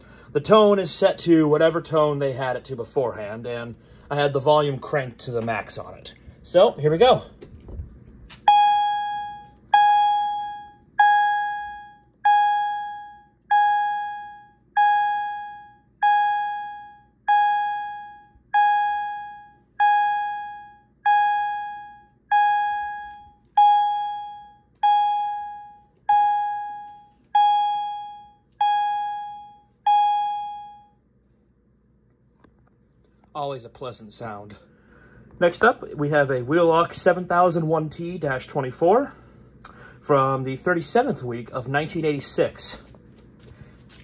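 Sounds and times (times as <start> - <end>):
fire alarm chime: 8.5 - 31.0.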